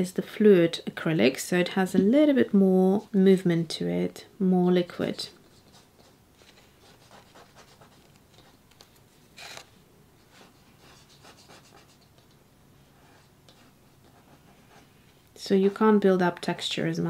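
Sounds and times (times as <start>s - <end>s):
foam brush dabbing on paper: 5.5s - 8.6s, 10.2s - 16.1s.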